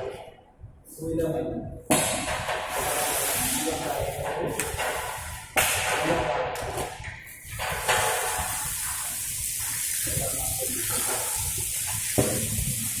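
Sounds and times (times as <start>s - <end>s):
water spraying from hose: 2.7s - 4.0s, 7.4s - 13.0s.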